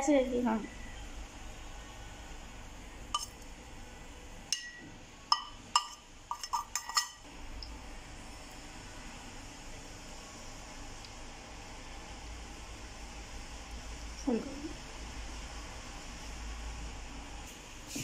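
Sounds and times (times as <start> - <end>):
spoon clinking on container rim: 3.2 - 3.4, 4.6 - 7.2.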